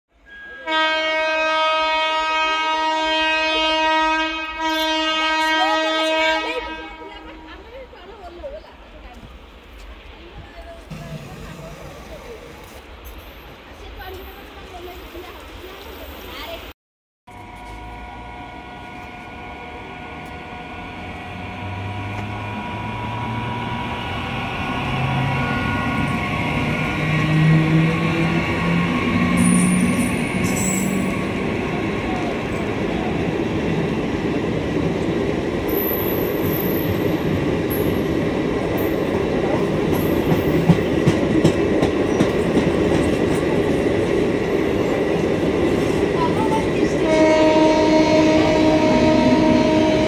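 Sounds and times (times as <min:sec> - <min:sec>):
train horn blast: 0:00.3 - 0:07.7, 0:17.3 - 0:31.4, 0:46.9 - 0:50.0
train running rumble: 0:07.6 - 0:15.8, 0:17.3 - 0:50.0
electric train high hum: 0:17.3 - 0:50.0.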